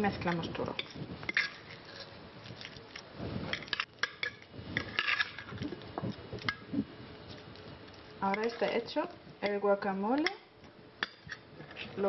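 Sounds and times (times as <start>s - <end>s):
wet stirring and scraping: 0.3s - 9.6s.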